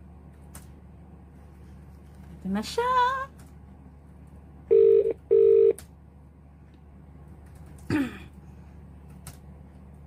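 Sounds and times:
telephone ringback tone: 4.7s - 5.8s.

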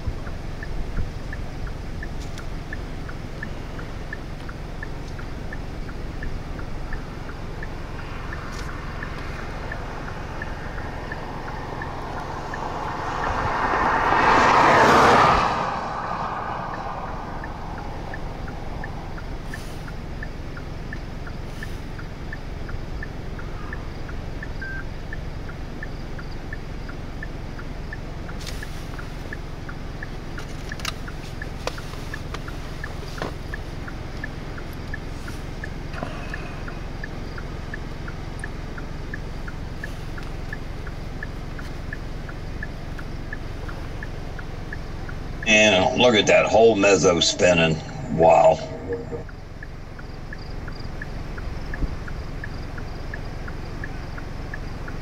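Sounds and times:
faint ticking: 0.0s - 14.2s, 15.8s - 45.8s
low outdoor rumble: 0.0s - 55.0s
vehicle passing: 4.8s - 22.3s, 39.9s - 50.4s.

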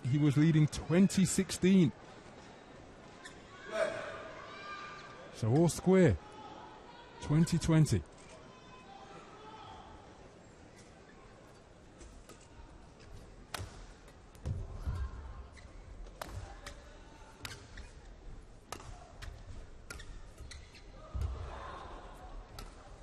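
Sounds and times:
crowd noise: 0.0s - 23.0s
rackets striking shuttlecock: 16.1s - 16.8s, 18.7s - 20.6s.

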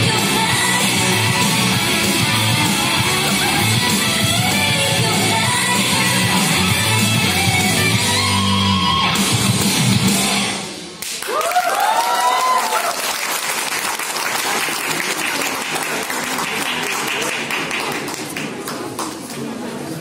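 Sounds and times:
dance music with heavy beat: 0.0s - 10.6s
audience cheering and applause: 11.0s - 18.4s
whoops: 11.2s - 13.2s.

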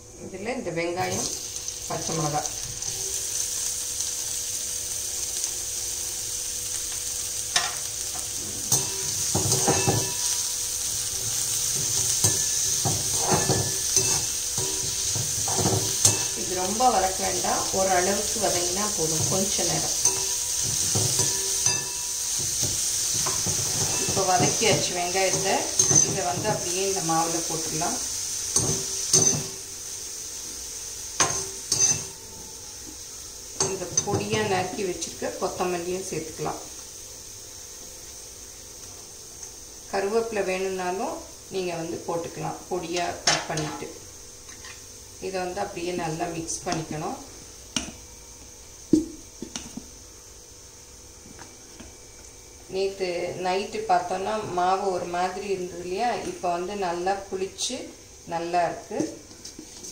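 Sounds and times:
onions sizzling in hot oil: 0.0s - 59.9s
metal ladle scraping pan: 7.6s - 16.6s, 18.5s - 26.8s.

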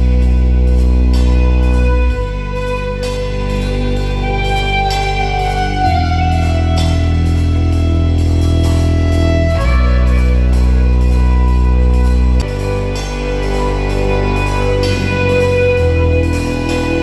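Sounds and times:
drum kit steady beat: 0.0s - 17.0s
fiddle playing: 0.0s - 17.0s.

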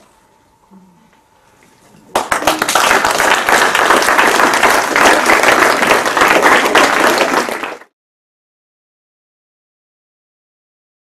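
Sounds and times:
audience applauding: 2.1s - 7.9s.

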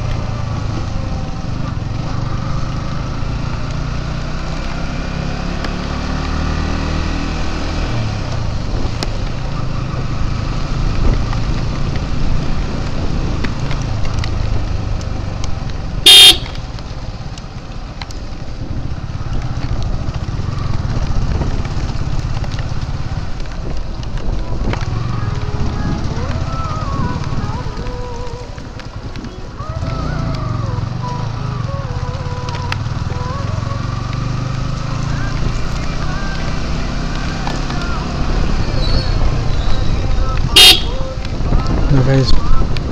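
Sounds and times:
motorcycle engine running: 0.0s - 42.9s
short horn toot: 16.1s - 16.6s, 40.6s - 41.2s.

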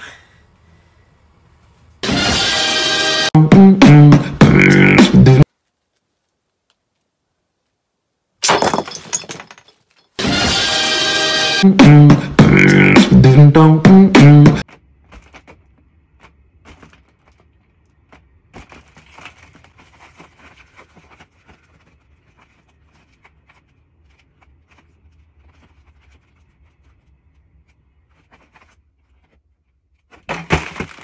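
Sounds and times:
faint clicks creaks and rustles: 5.5s - 7.8s.

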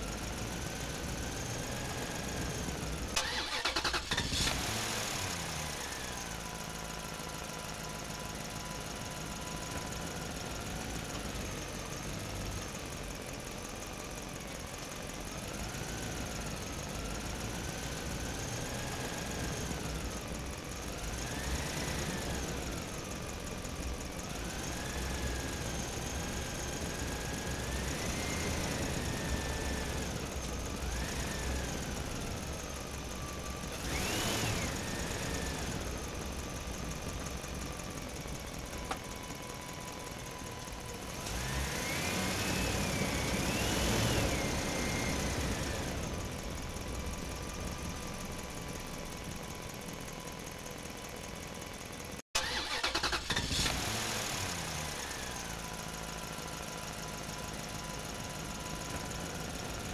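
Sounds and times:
vehicle engine revving: 1.0s - 6.4s, 24.3s - 32.5s, 33.7s - 37.6s, 41.0s - 46.4s, 52.4s - 55.7s.

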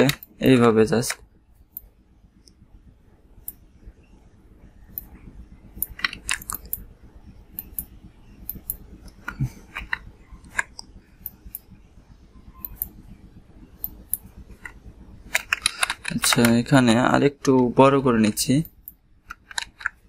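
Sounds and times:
computer mouse clicks: 4.9s - 5.2s, 5.8s - 6.8s, 7.6s - 11.7s, 12.6s - 13.0s, 13.8s - 16.6s, 18.6s - 20.0s
keyboard clicks: 5.8s - 6.8s, 13.8s - 16.6s.

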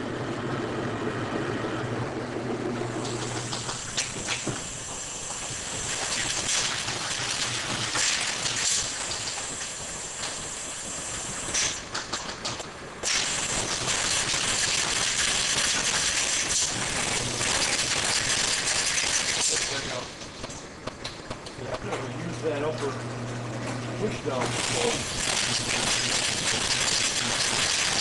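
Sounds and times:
bottling machinery hiss: 3.0s - 20.8s, 24.0s - 28.0s.

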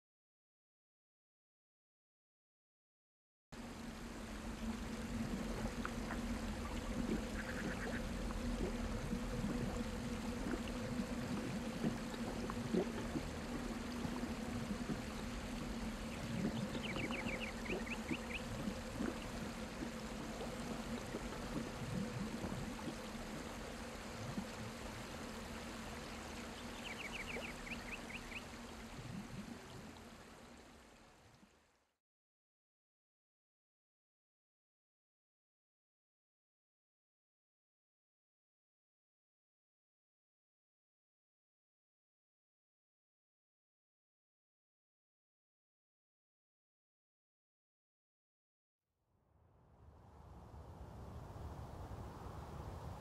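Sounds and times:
steady low hum: 3.6s - 31.5s
trickling water: 3.6s - 31.8s.

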